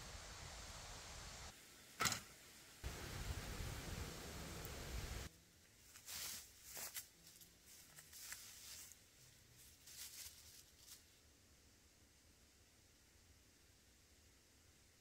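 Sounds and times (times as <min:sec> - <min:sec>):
footsteps crunching dry leaves: 0:05.8 - 0:11.1.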